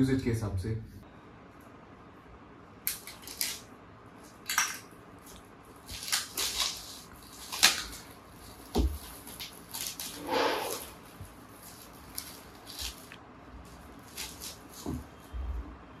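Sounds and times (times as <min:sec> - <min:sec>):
packaging rustling and scraping: 0:05.8 - 0:15.2.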